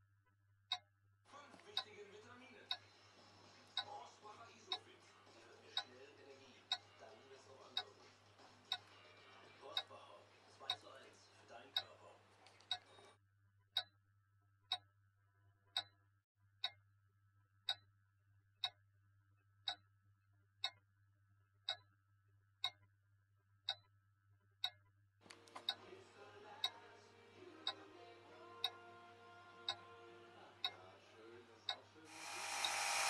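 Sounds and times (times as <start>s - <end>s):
clock ticking: 1.5s - 2.0s, 2.7s - 2.9s, 3.7s - 9.0s, 9.6s - 11.0s, 11.7s - 12.0s, 12.6s - 12.8s, 15.7s - 15.9s, 17.6s - 17.9s, 19.6s - 19.9s, 20.6s - 20.8s, 21.6s - 21.9s, 22.6s - 22.9s, 23.6s - 23.9s, 24.6s - 25.8s, 26.6s - 26.9s, 27.6s - 27.8s, 30.6s - 30.8s, 31.7s - 33.0s
held tones: 32.1s - 33.0s.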